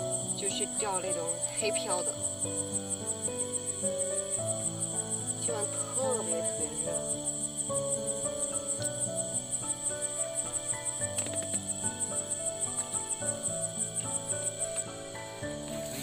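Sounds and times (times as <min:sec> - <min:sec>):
insects chirping: 0:00.0 - 0:16.0
soft background music: 0:00.0 - 0:16.0.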